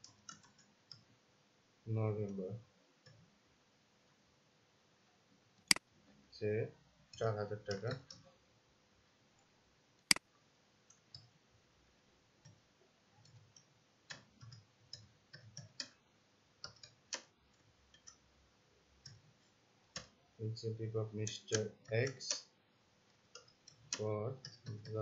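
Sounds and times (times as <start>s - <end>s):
computer keyboard keys clicking: 0.0s - 1.0s, 13.2s - 16.0s, 16.6s - 17.3s, 17.9s - 18.2s, 23.3s - 25.0s.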